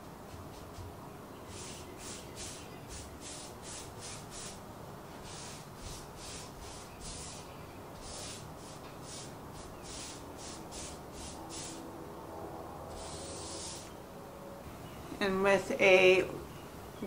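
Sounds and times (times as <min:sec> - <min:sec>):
paintbrush strokes swishing: 0:00.3 - 0:00.9, 0:01.5 - 0:04.6, 0:05.2 - 0:11.8.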